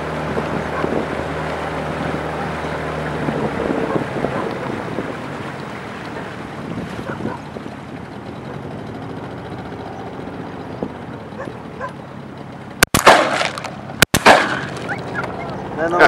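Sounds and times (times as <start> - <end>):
boat engine rumble: 0.0 - 16.0
shotgun blasts: 12.8 - 14.9.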